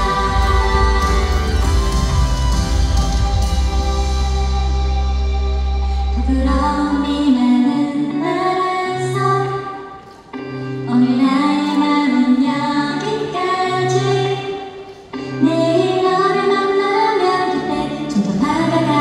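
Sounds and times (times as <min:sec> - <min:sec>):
woman singing a slow ballad: 0:00.0 - 0:01.9, 0:06.1 - 0:10.1, 0:10.7 - 0:19.0
musical accompaniment: 0:00.0 - 0:19.0.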